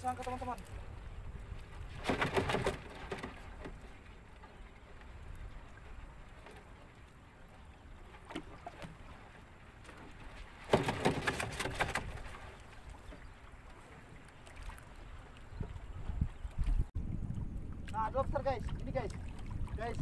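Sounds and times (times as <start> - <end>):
rumble of water and wind: 0.0 - 20.0
net clattering and splashing: 2.0 - 3.4, 10.6 - 12.4
knocks on wooden boat: 10.7 - 12.1.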